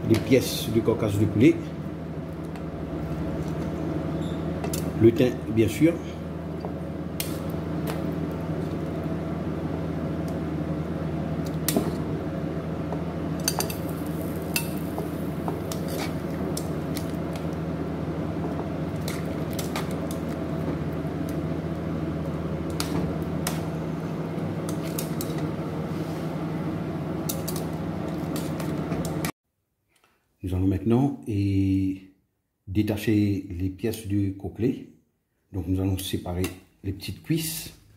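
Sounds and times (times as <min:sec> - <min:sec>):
steady hum: 0:00.0 - 0:29.3.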